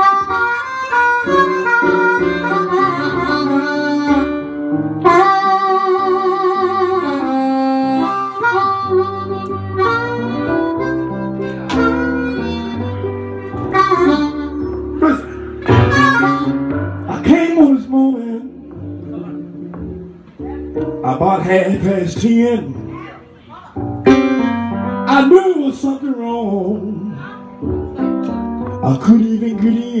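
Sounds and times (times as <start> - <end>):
amplified blues harmonica: 0.0 - 19.9
electric keyboard bass line: 0.0 - 30.0.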